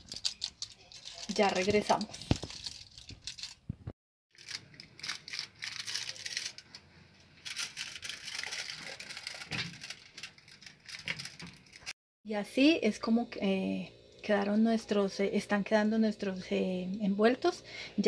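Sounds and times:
aluminium foil crinkling: 0:00.0 - 0:06.8, 0:07.4 - 0:12.0.

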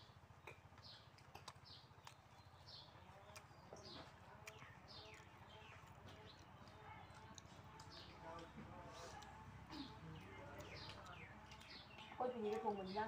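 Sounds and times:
faint birdsong chirps: 0:00.0 - 0:13.0
chewing clicks: 0:00.4 - 0:13.0.

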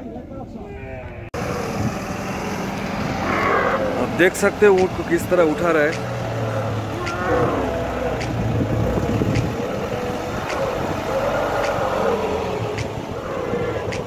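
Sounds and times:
diesel engine running: 0:01.4 - 0:14.0.

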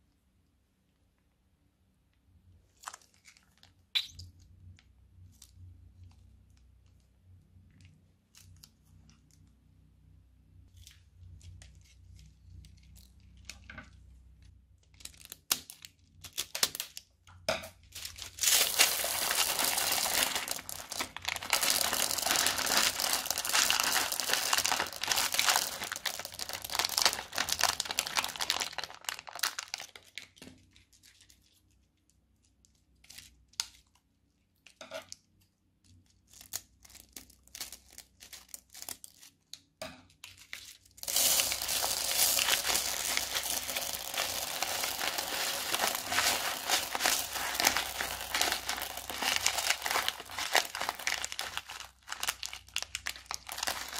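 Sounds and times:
plastic bag crinkling: 0:17.9 - 0:31.5, 0:40.3 - 0:53.9
plastic beads clicking: 0:18.5 - 0:28.5, 0:41.0 - 0:53.9.

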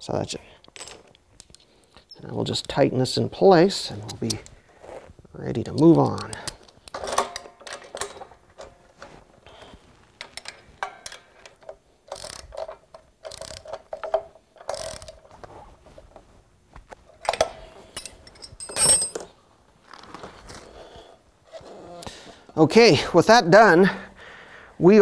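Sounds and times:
metal tools clinking: 0:00.7 - 0:02.2, 0:05.8 - 0:09.2, 0:10.2 - 0:15.3, 0:17.2 - 0:19.4
ratchet wrench clicking: 0:12.1 - 0:13.9, 0:14.6 - 0:15.2.

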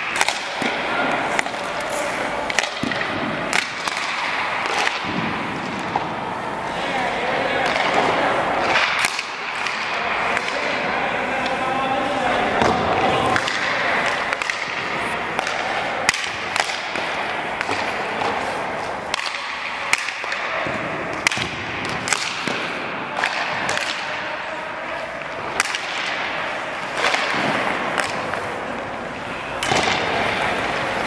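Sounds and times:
hockey stick striking puck: 0:00.0 - 0:06.2, 0:07.5 - 0:11.7, 0:12.3 - 0:24.3, 0:24.9 - 0:31.0
puck hitting goalie pads: 0:00.0 - 0:06.2, 0:07.5 - 0:11.7, 0:12.3 - 0:31.0.

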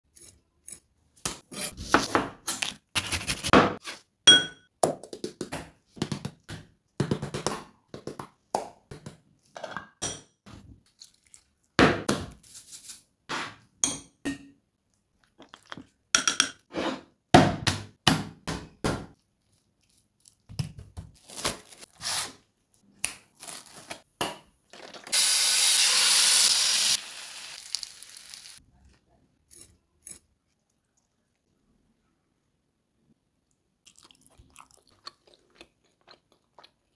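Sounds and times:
spoon clinking against ceramic bowl: 0:04.3 - 0:04.6
fish sizzling in hot oil: 0:25.1 - 0:28.6.

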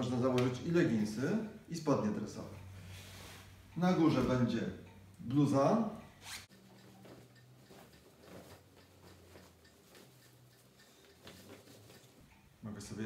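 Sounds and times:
fabric rustling: 0:06.2 - 0:12.3.

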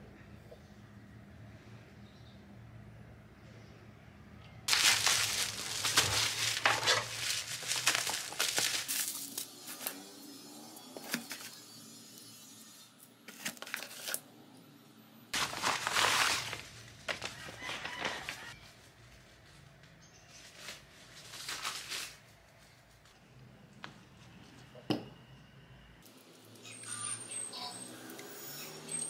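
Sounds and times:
bubble wrap and cardboard crinkling: 0:04.7 - 0:10.1, 0:13.3 - 0:14.2, 0:15.4 - 0:23.1.

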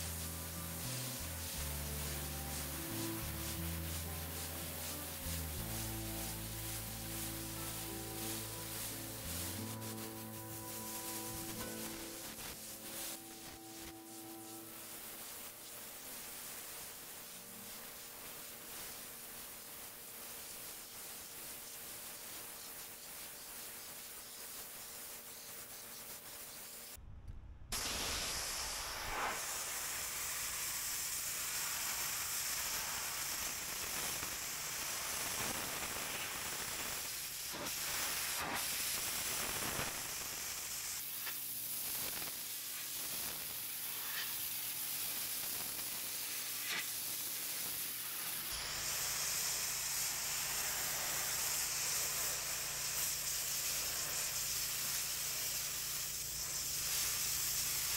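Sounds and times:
pressure washer spray hissing: 0:00.0 - 0:27.0, 0:27.8 - 0:57.9
low hum: 0:27.0 - 0:27.8.

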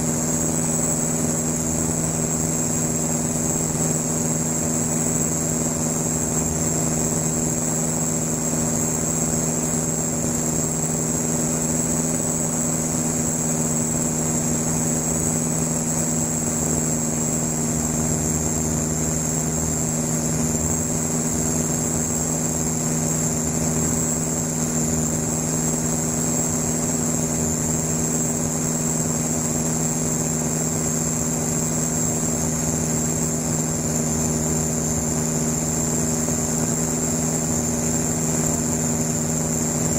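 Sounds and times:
aircraft engine and propeller droning: 0:00.0 - 0:39.9
thin high whine: 0:00.0 - 0:39.9.

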